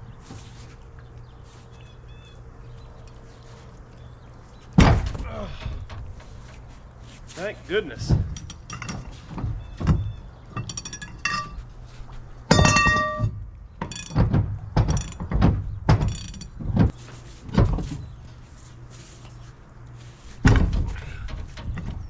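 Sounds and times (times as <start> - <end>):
steel pipe and wrench clanking: 8.1 - 11.8, 12.5 - 16.9
long ringing steel clang: 12.5 - 13.4.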